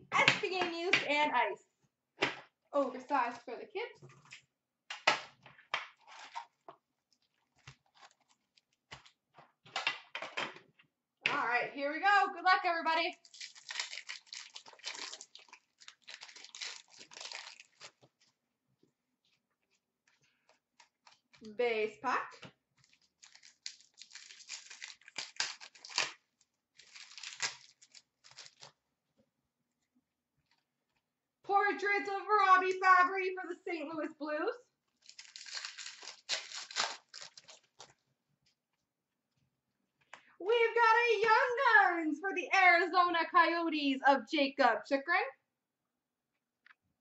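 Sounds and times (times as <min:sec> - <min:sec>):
card pack wrapper crinkling: 0:13.2 - 0:18.3, 0:22.8 - 0:28.8, 0:35.0 - 0:38.0
cards rustling: 0:13.3 - 0:18.4, 0:22.8 - 0:26.2, 0:26.8 - 0:28.8, 0:35.0 - 0:38.0.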